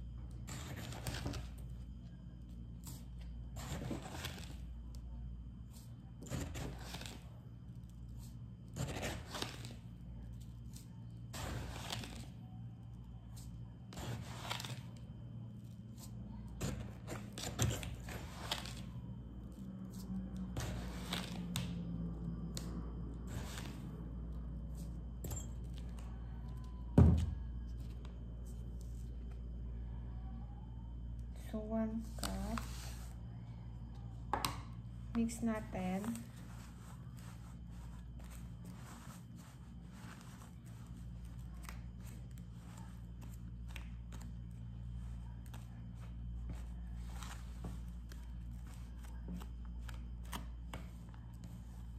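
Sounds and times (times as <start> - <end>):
steady low hum: 0.0 - 51.9
rustling scrapes: 36.1 - 41.4.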